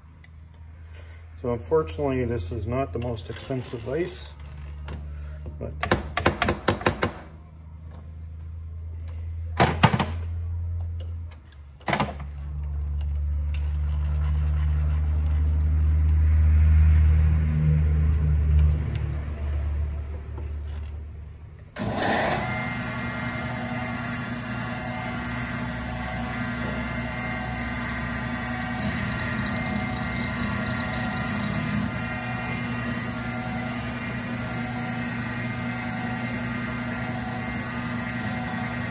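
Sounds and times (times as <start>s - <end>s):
milling machine motor running: 21.8s - 38.9s.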